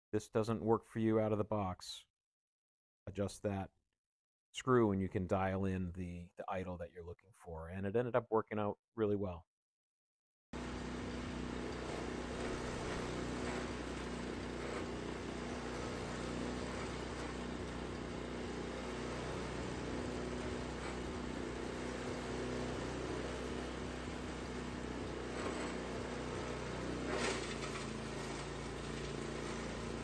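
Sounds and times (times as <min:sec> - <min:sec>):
chipper shredder engine running: 0:10.6 - 0:30.0
branches being shredded: 0:25.3 - 0:30.0.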